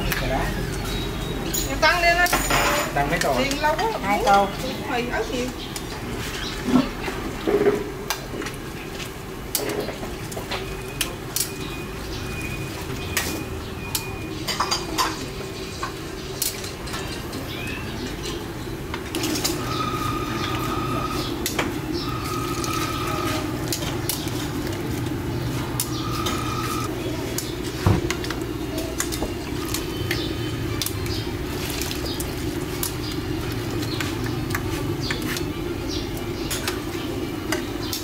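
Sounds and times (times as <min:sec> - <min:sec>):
utensils clinking and knocking: 0:01.5 - 0:04.0.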